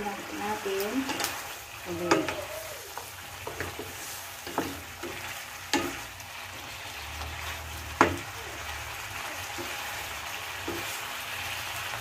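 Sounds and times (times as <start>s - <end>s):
meat sizzling in a pot: 0.0s - 12.0s
wooden spatula clacking on pot: 2.0s - 6.1s, 8.0s - 8.3s.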